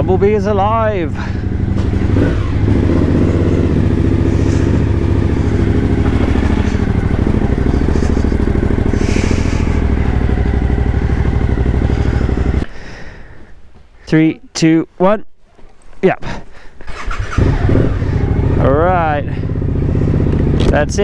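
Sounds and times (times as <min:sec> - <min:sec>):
motorcycle engine at low revs: 0:00.0 - 0:12.7, 0:16.8 - 0:21.0.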